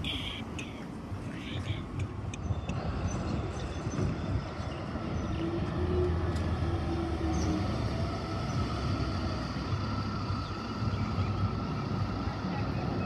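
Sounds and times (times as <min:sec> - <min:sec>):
bus engine driving past: 0:02.6 - 0:13.0.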